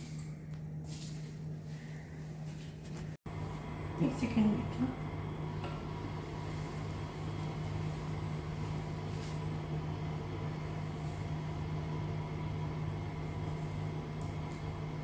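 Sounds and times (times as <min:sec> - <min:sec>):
fan humming: 0:00.0 - 0:15.0.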